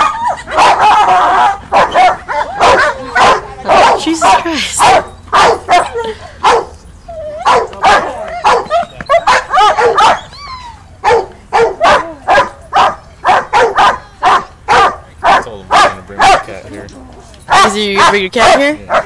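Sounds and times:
dog barking: 0.0 - 6.7, 7.4 - 10.2, 11.0 - 16.5, 17.5 - 19.0
dog whining: 7.0 - 11.2.

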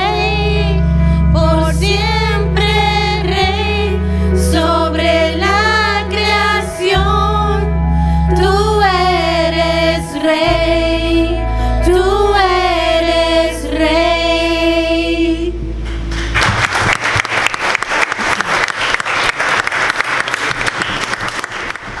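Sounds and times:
women singing: 0.0 - 15.6
sustained bass accompaniment: 0.0 - 17.8
congregation applauding: 15.8 - 22.0.

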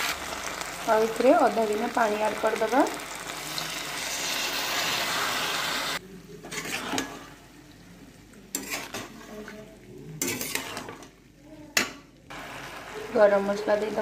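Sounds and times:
water sizzling in wok: 0.0 - 11.4, 12.3 - 14.0
spatula scraping a pan: 3.5 - 7.4, 8.5 - 11.1.

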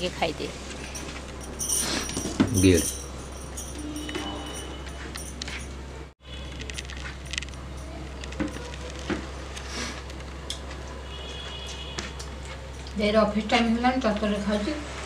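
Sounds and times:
bangles clinking: 0.8 - 5.8, 6.6 - 9.0.

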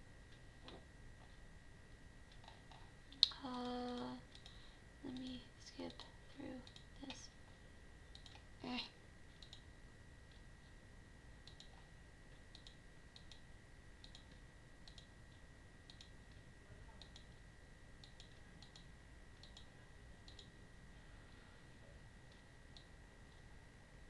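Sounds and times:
faint high whine: 0.0 - 24.0
computer mouse clicks: 2.3 - 7.2, 8.1 - 8.5, 9.3 - 9.7, 11.4 - 13.4, 14.0 - 15.1, 15.9 - 16.4, 17.0 - 17.4, 18.0 - 20.5.

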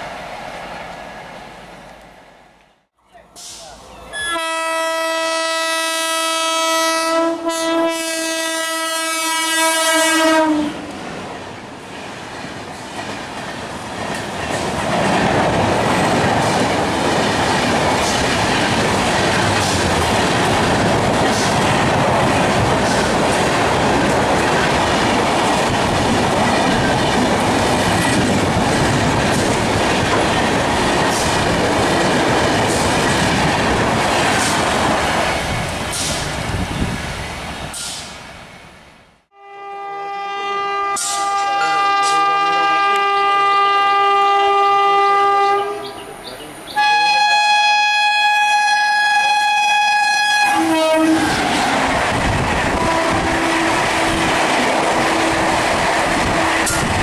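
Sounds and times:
locomotive air horn: 4.2 - 10.8, 39.3 - 45.9, 46.8 - 51.4, 52.8 - 54.2
train coaches rushing past: 9.9 - 39.1, 40.8 - 43.3, 48.8 - 57.0.

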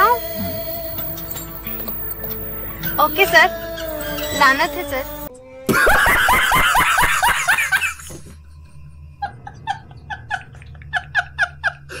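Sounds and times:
man laughing hard: 5.7 - 8.4, 9.2 - 12.0.

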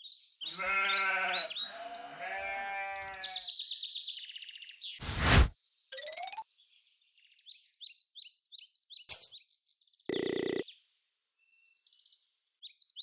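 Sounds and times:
bleat-like animal calls: 0.5 - 3.4
short loud whoosh: 5.0 - 5.5.

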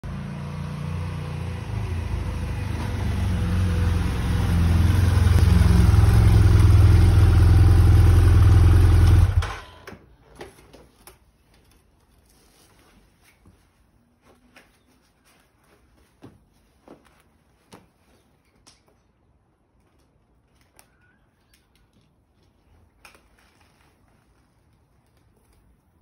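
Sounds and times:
motorcycle engine running: 0.0 - 9.8.

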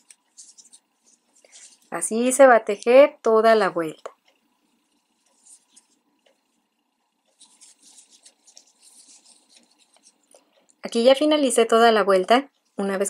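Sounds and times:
crochet hook scratching yarn: 0.0 - 3.4, 4.6 - 10.4.

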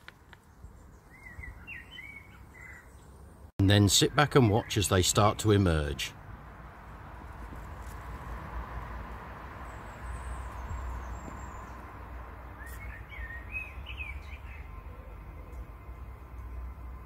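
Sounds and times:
small bird chirping: 0.4 - 3.1, 12.6 - 14.8.

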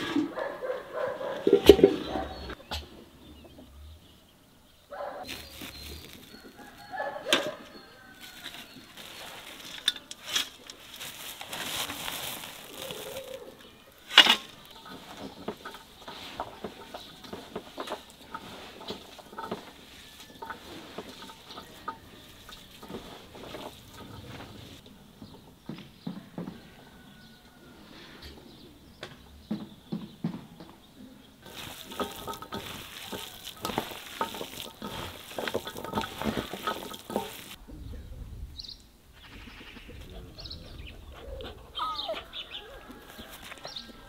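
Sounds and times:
wing rustle: 4.9 - 24.8, 31.4 - 37.6
metal scoop scraping soil: 5.2 - 24.8, 31.4 - 37.6.

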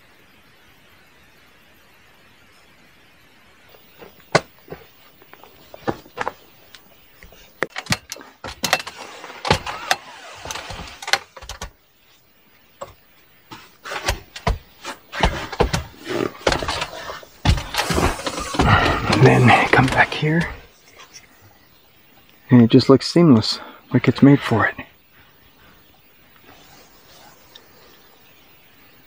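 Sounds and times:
tent fabric rustling: 7.4 - 11.3
knocks and clicks: 7.6 - 11.7.

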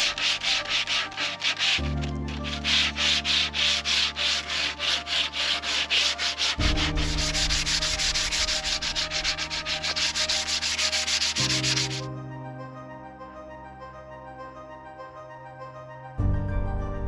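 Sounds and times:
sandpaper rasping on wood: 0.0 - 12.1.

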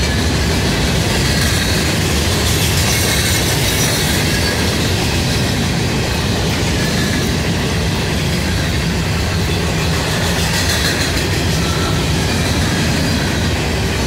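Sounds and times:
train wheels rumbling on rail: 0.0 - 14.0
faint high wheel squeal: 11.4 - 13.4.

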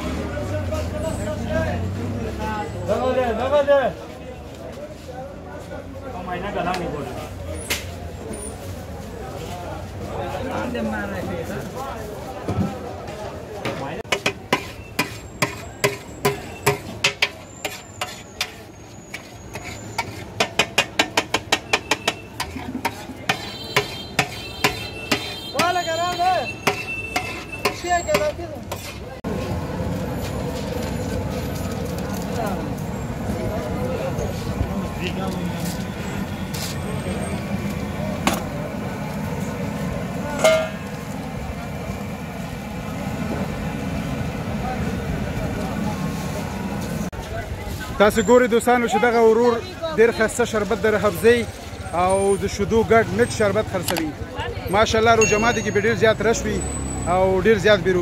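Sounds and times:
street traffic hum: 0.0 - 58.0
steel spatula clanking on iron pan: 14.1 - 25.8, 26.5 - 28.9, 40.4 - 40.8
crowd murmur: 26.5 - 48.0.

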